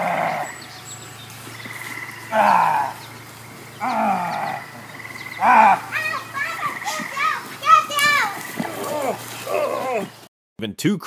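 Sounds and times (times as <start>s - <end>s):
dog growling barks: 3.8s - 5.9s.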